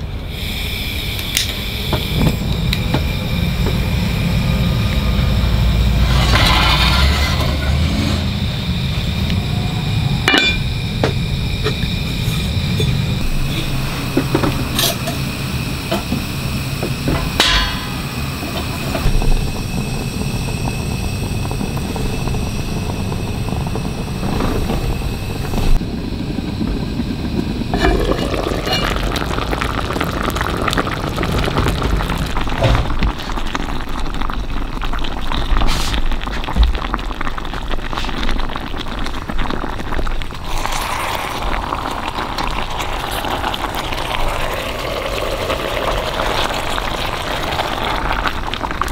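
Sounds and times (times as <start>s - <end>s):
sauce bubbling in a pot: 11.5s - 48.9s.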